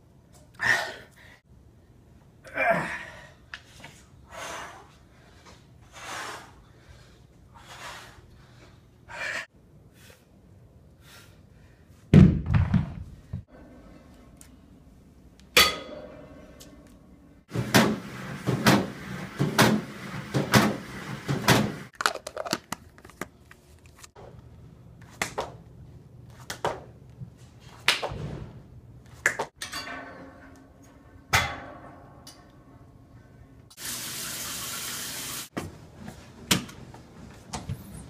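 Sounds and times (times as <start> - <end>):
running water: 33.8 - 35.5.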